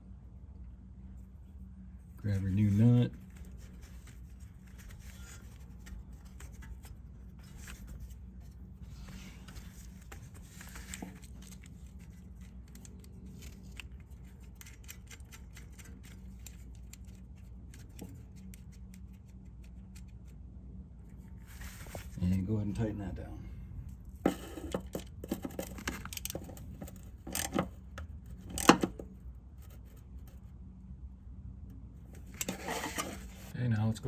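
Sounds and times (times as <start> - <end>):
steady low hum: 0.0 - 34.0
small nut clicking and scraping: 10.8 - 20.3.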